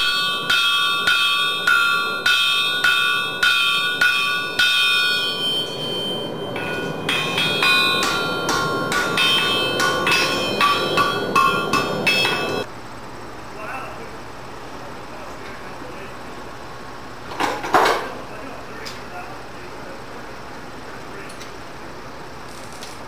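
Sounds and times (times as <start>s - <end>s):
hammer striking steel anvil: 0.0s - 12.7s.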